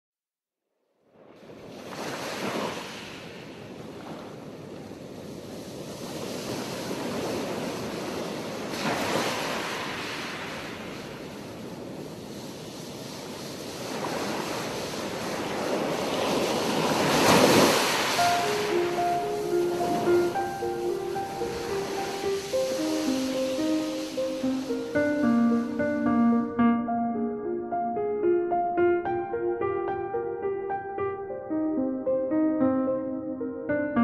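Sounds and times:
rushing water: 12.9s - 26.2s
soft musical notes: 18.2s - 34.0s.

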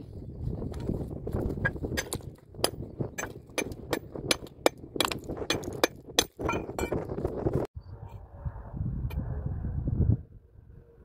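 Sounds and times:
rocks knocking together: 0.7s - 7.0s
low rumble: 6.7s - 11.0s.

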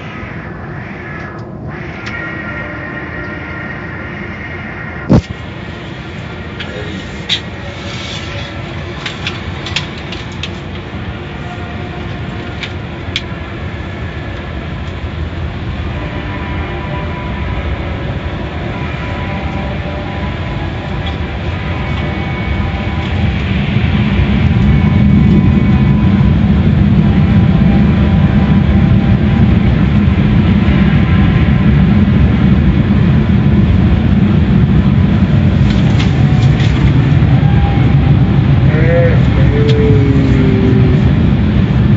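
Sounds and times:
car wash equipment running: 17.6s - 41.9s.

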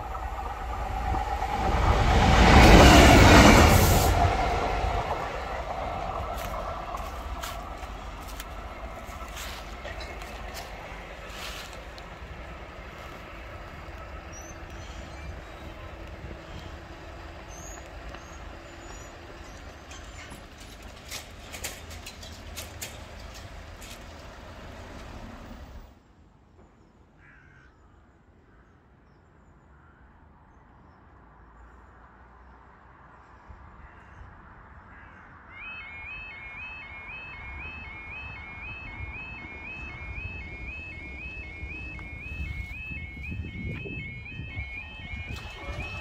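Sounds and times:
barrier clicks and clanks: 19.4s - 25.3s, 43.7s - 46.0s
crow cawing: 27.2s - 27.8s, 33.8s - 34.3s, 34.9s - 35.4s
level crossing barriers rising: 35.5s - 46.0s.

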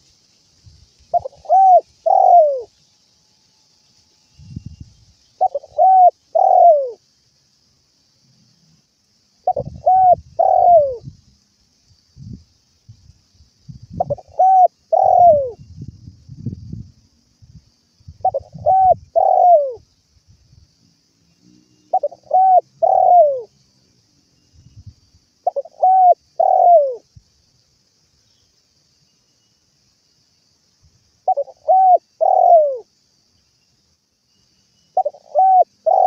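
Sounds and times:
dove cooing: 1.2s - 2.7s, 5.4s - 7.0s, 9.5s - 11.1s, 14.0s - 15.6s, 18.2s - 19.8s, 21.9s - 23.5s, 25.4s - 27.0s, 31.3s - 32.9s, 35.0s - 36.0s.

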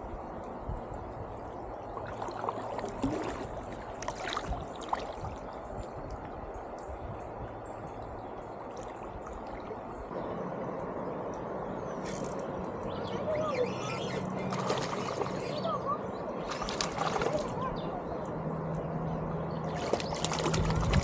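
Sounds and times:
knocks and splashes: 2.0s - 5.6s, 14.5s - 15.6s, 16.4s - 17.6s, 19.6s - 21.0s
river water running over rocks: 14.4s - 17.9s.

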